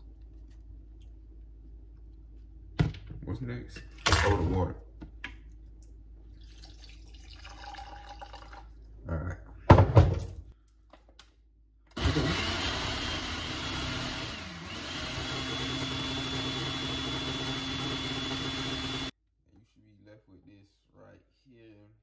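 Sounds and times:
water pouring into a glass: 0:06.3 - 0:08.8
blender whining: 0:11.9 - 0:19.2.

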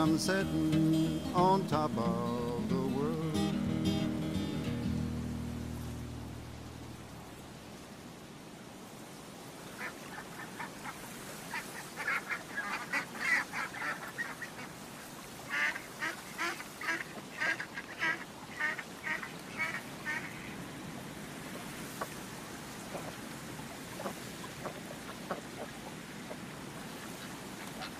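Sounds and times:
ducks quacking: 0:09.8 - 0:14.8, 0:15.5 - 0:20.6, 0:27.0 - 0:27.9.

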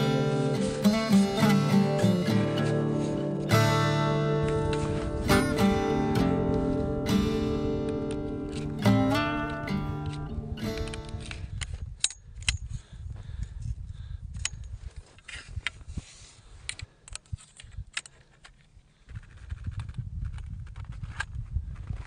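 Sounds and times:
tent poles clicking: 0:00.0 - 0:05.5, 0:07.7 - 0:12.7, 0:16.6 - 0:22.0
acoustic guitar music: 0:00.0 - 0:11.4
wind on microphone: 0:04.1 - 0:18.0, 0:19.0 - 0:22.0.

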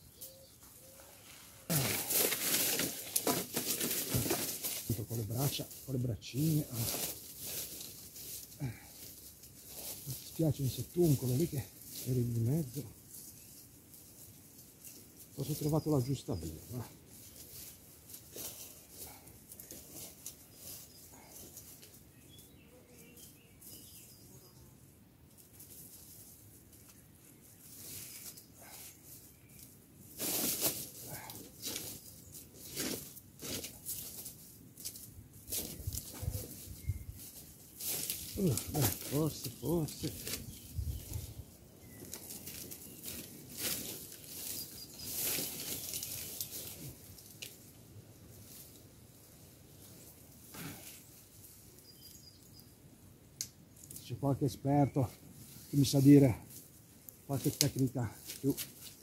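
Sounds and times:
faint bird chirps: 0:00.0 - 0:01.2, 0:22.1 - 0:24.7, 0:36.1 - 0:37.2, 0:51.8 - 0:52.8
twigs and leaves rustling: 0:00.0 - 0:24.6, 0:25.2 - 0:59.0
twigs snapping: 0:32.6 - 0:47.7, 0:53.4 - 0:54.0, 0:57.0 - 0:59.0.

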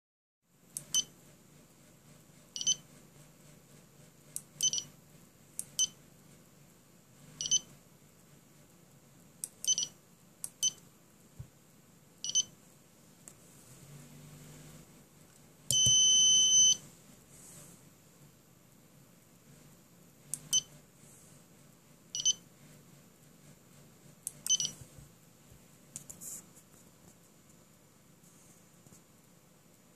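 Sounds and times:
electronic buzzer beeps: 0:07.4 - 0:07.7, 0:15.7 - 0:16.8.

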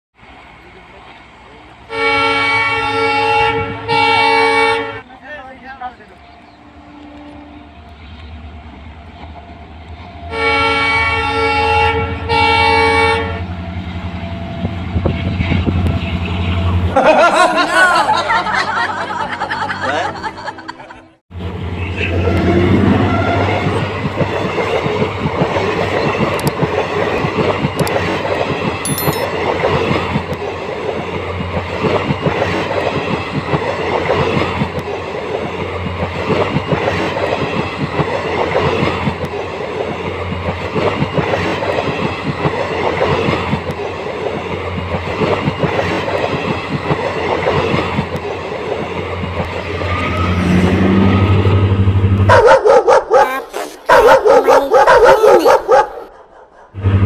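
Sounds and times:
train wheels clattering on rails: 0:23.5 - 0:50.4.

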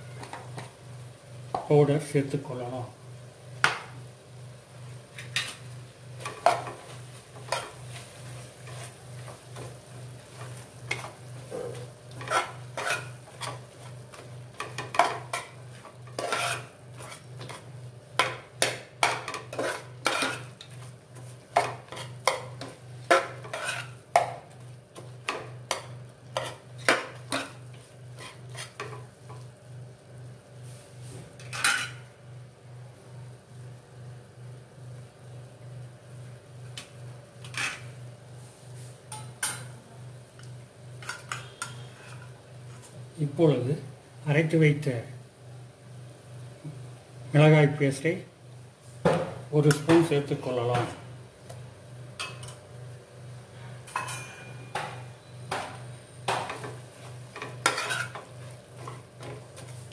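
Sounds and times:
ladle scraping metal pot: 0:12.1 - 0:13.6, 0:16.1 - 0:17.6, 0:19.3 - 0:20.5, 0:23.4 - 0:24.0, 0:57.5 - 0:58.2.

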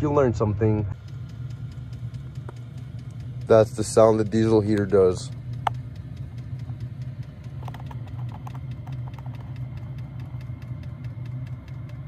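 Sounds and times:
diesel heater humming: 0:00.0 - 0:12.0
fuel pump ticking: 0:00.0 - 0:12.0.

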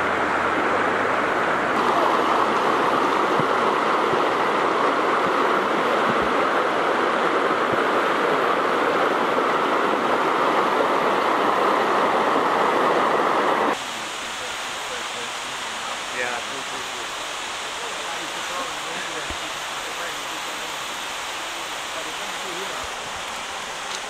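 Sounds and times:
river water rushing: 0:00.0 - 0:24.0.

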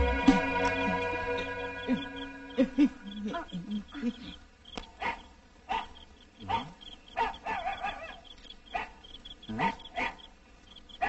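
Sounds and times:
high chirping: 0:00.0 - 0:11.0
dog barking: 0:05.0 - 0:10.3.

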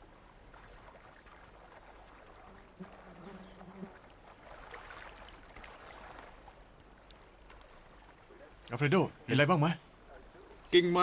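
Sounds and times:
shallow water splashing: 0:00.0 - 0:09.3
insect buzzing: 0:02.5 - 0:04.1.

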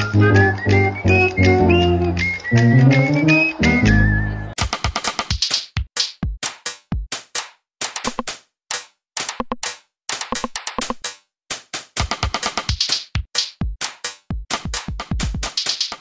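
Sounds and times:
electronic dance music beat: 0:10.3 - 0:16.0.

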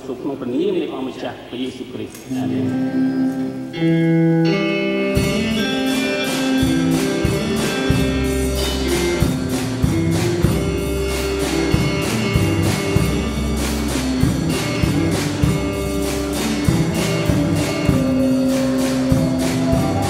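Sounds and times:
steady beat with bass: 0:06.8 - 0:20.0.

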